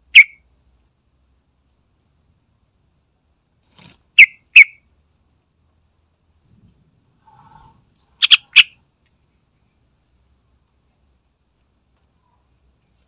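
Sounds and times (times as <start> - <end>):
bird call notes: 0.0 - 0.4, 8.2 - 8.8.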